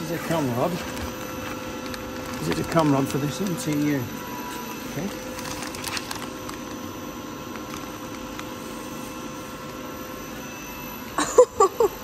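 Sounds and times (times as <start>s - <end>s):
machinery hum: 0.0s - 12.0s
plastic crinkling: 0.2s - 8.7s.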